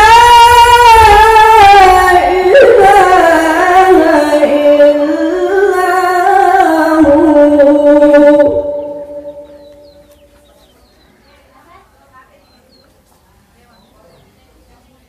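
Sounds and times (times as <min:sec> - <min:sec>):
man reciting melodically: 0:00.0 - 0:10.0.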